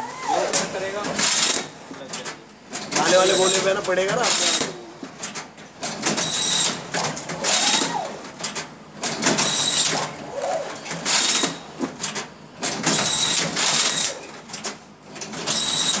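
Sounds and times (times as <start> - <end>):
strapping machine motor whirring: 0.0 - 16.0.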